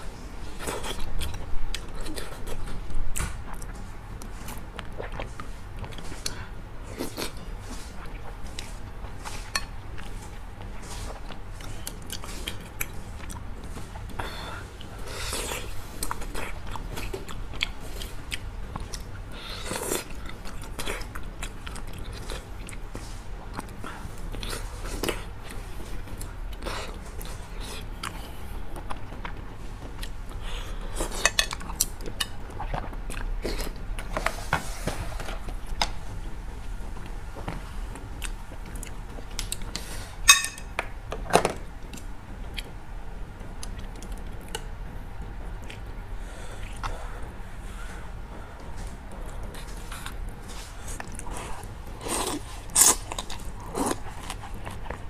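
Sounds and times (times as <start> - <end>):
tableware clinks: 40.3 - 40.7
chewing and biting: 49.1 - 55.0.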